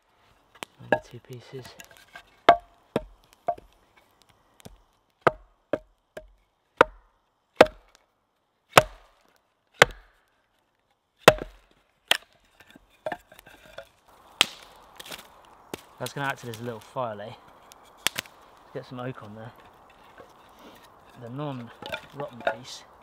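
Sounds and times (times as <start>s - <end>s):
axe splitting wood knocks: 2.5s - 3.7s, 5.3s - 7.0s, 7.6s - 7.9s, 8.8s - 9.1s, 9.8s - 10.1s, 11.3s - 12.3s.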